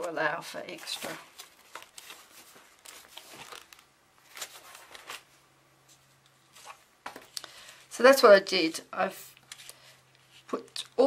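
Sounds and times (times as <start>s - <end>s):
paper pages rustling and tapping: 0.0s - 5.3s, 5.9s - 7.4s.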